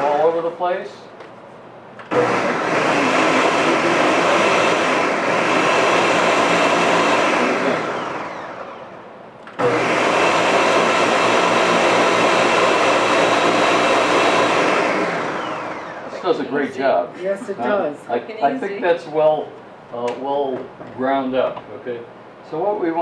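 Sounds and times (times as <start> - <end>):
blender pureeing vegetables: 2.1 - 8.9, 9.5 - 17.0.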